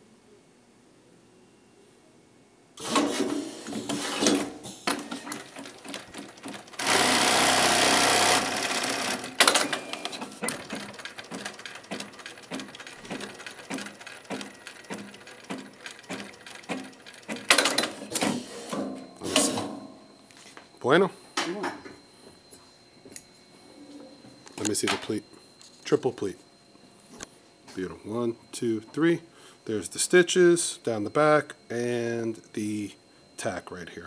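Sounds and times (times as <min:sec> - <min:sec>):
sewing machine stitching strokes: 0:02.8 - 0:18.5
machine running steadily: 0:02.8 - 0:34.0
machine mechanical clacks: 0:04.9 - 0:18.3.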